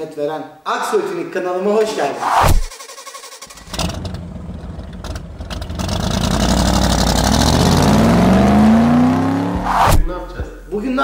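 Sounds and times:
car engine revving up: 0:03.6 - 0:10.1.

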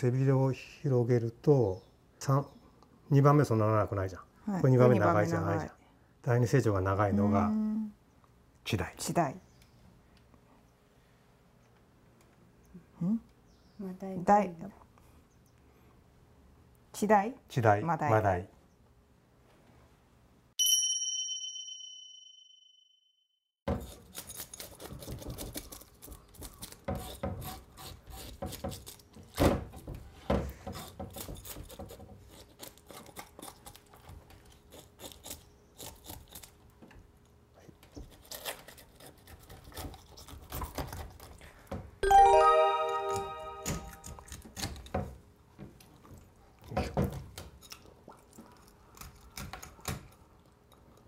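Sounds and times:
bright chime: 0:20.6 - 0:23.0, 0:42.0 - 0:44.2
knife scraping fish: 0:38.1 - 0:41.3.

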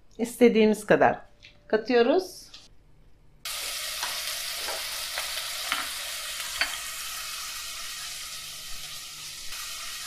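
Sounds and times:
onion sizzling in hot oil: 0:03.5 - 0:10.0.

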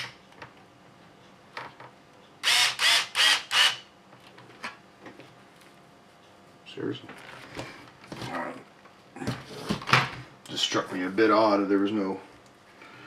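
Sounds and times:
electric screwdriver whirring: 0:02.4 - 0:03.8.

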